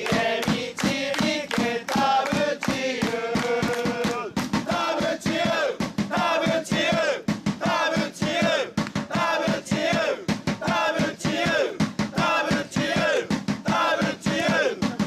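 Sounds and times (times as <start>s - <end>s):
rhythmic drum hits: 0.0s - 15.0s
supporters chanting in unison: 0.0s - 15.0s.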